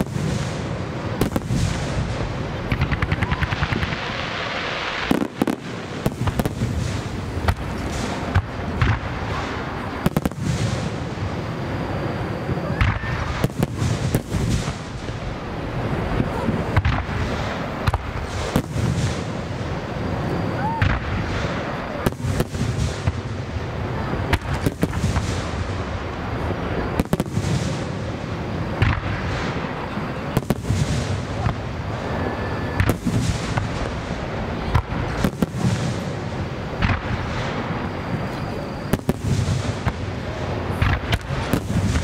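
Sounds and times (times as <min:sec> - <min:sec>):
fireworks bangs and cracks: 0:00.0 - 0:42.0.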